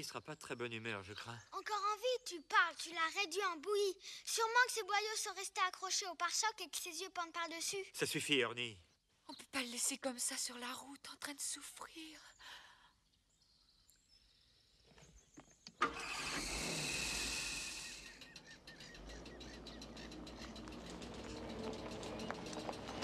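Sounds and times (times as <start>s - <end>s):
car engine starting and running: 15.7s - 23.0s
tyres crunching over gravel: 18.7s - 23.0s.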